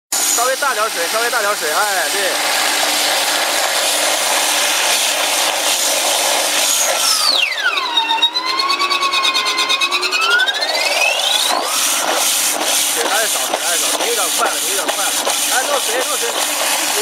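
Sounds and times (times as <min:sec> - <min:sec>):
grinding machine hissing: 0:00.1 - 0:17.0
machine squeal: 0:06.6 - 0:14.8.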